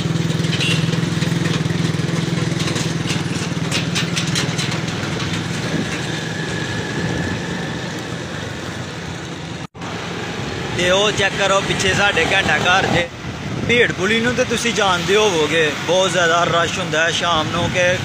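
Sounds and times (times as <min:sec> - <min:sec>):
vehicle engine running: 0:00.0 - 0:10.0
street traffic: 0:00.0 - 0:18.0.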